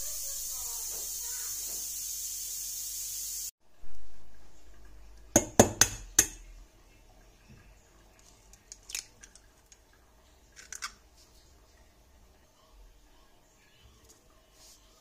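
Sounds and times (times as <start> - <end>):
egg tapping on saucepan rim: 5.3 - 6.4
eggshell crackling: 8.2 - 11.1.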